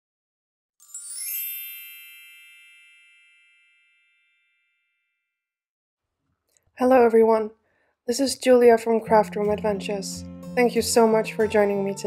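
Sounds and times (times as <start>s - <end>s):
sparkling bell chime: 0.8s - 5.1s.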